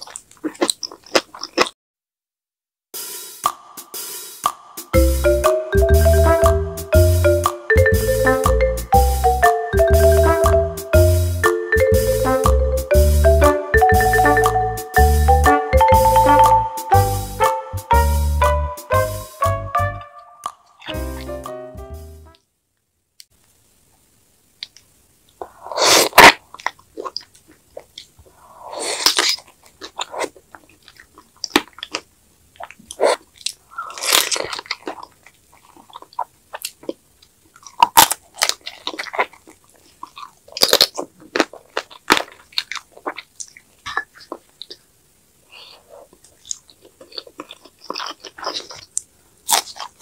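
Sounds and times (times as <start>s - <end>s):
chewing and crunching: 0.0s - 1.8s, 25.4s - 50.0s
wet mouth clicks: 32.6s - 44.9s.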